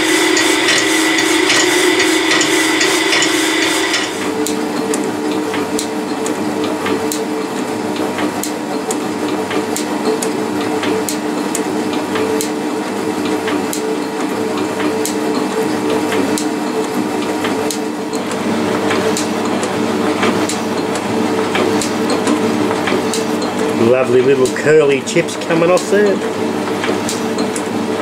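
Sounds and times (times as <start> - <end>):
power saw cutting steel: 0.0 - 4.4
metal shaper humming: 0.0 - 5.0
sharp ticks of shaper tool: 0.3 - 5.0.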